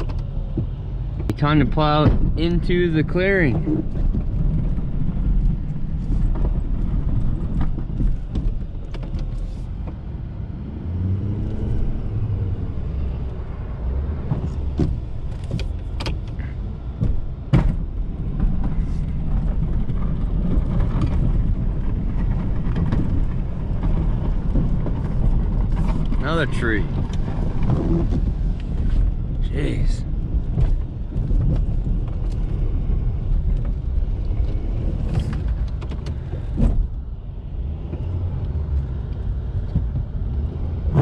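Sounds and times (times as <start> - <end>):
diesel truck engine under load: 0.0 - 41.0.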